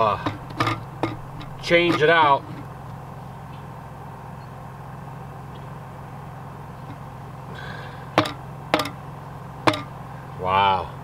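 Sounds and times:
steady low hum: 0.0s - 11.0s
plastic knocking against pipe: 0.2s - 2.0s, 8.2s - 9.0s, 9.6s - 9.9s.

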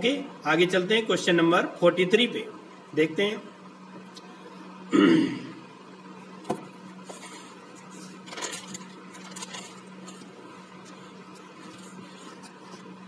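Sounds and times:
steady low hum: 0.0s - 13.0s
notebook pages rustling: 7.0s - 13.0s.

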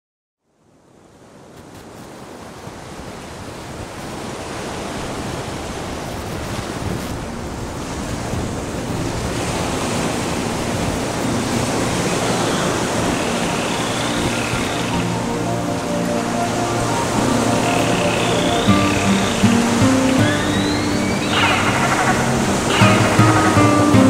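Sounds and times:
ocean surf: 2.2s - 24.0s
faint musical tones: 8.7s - 24.0s.

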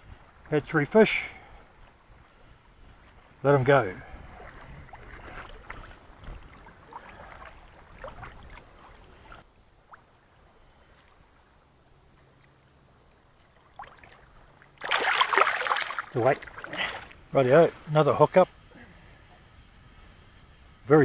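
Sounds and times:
faint water lapping: 0.0s - 20.8s
water splashing around hands: 4.3s - 10.1s, 13.6s - 17.2s.

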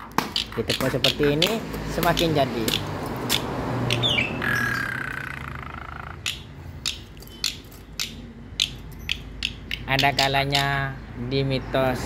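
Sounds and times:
sharp clicks: 0.0s - 4.1s, 6.1s - 10.8s
starling squawking calls: 2.7s - 10.8s.

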